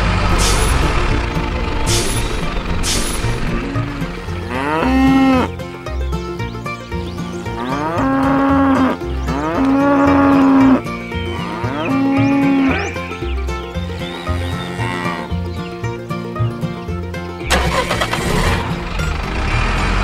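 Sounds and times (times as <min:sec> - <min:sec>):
low repeating beat: 0:00.0 - 0:11.3
cow mooing: 0:03.5 - 0:05.6, 0:07.5 - 0:13.0, 0:13.8 - 0:15.4.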